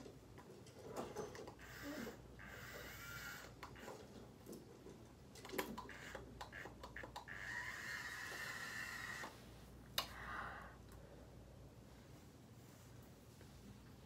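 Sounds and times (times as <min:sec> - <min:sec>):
soft hiss: 0:09.3 - 0:14.0.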